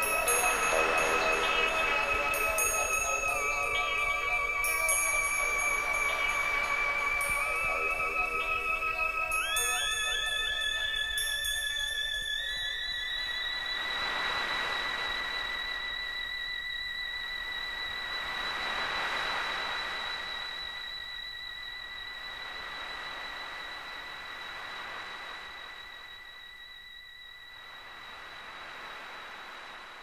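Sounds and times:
high whistling electronic tone: 0.0 - 14.0
hissing noise swells: 0.0 - 20.8.

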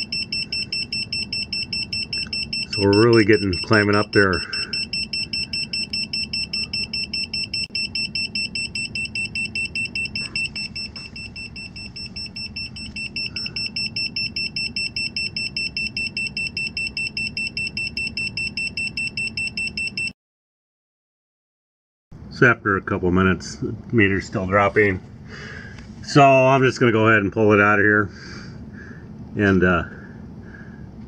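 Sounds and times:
fast high-pitched alarm beeps: 0.0 - 20.1.

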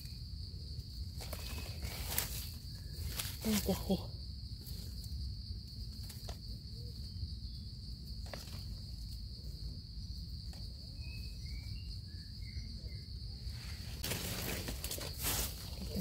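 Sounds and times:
insect chorus drone: 0.0 - 16.0
faint chirps: 9.4 - 14.0.

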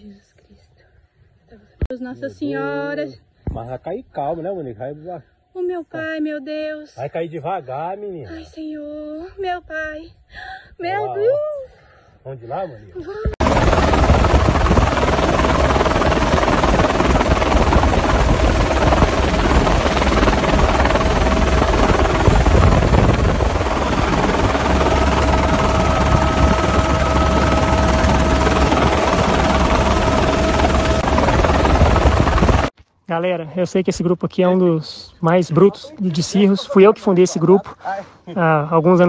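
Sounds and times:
helicopter engine and rotor: 13.4 - 32.7
steady tone: 13.4 - 32.7.

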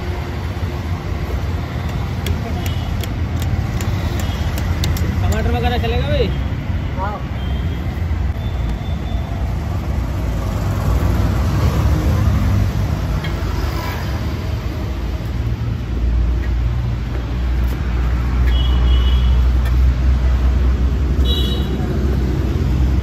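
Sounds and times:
traffic engine rumble: 0.0 - 23.0.

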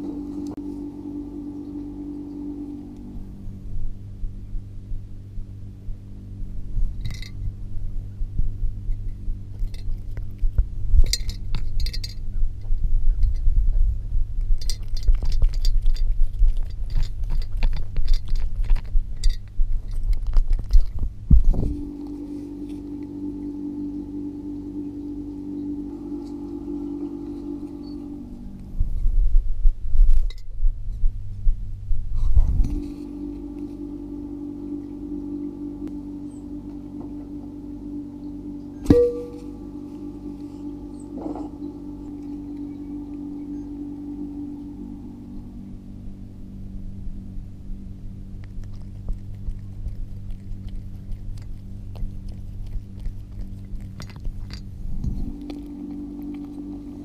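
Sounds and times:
steady hum: 0.0 - 57.0
glass vase ringing when knocked: 38.8 - 39.6.

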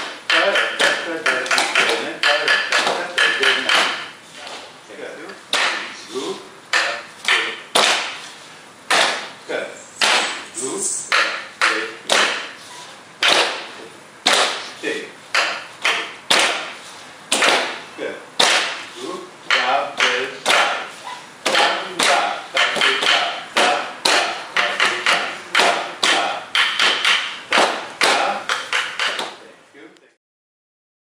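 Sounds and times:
sharp rhythmic ringing strikes: 0.0 - 4.2, 6.7 - 8.2, 9.6 - 12.6, 14.3 - 16.8, 18.4 - 29.2
person's voice: 10.5 - 11.1.

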